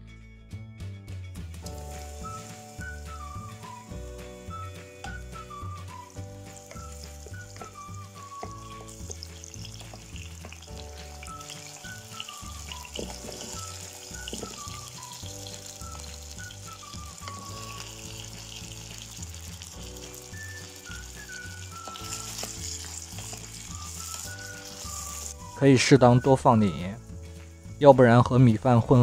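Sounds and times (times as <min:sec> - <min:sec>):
background music with bass: 0:00.0 - 0:29.0
mushrooms sizzling in oil: 0:01.6 - 0:28.2
potato chunks knocking into pan: 0:06.5 - 0:16.2.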